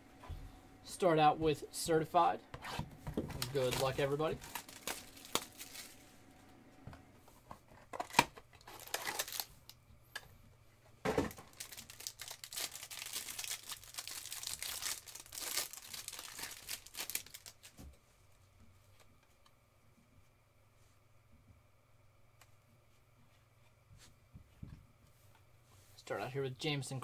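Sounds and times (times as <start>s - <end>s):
shrink wrap tearing and crinkling: 3.3s - 6.0s, 8.0s - 9.8s, 11.3s - 17.8s.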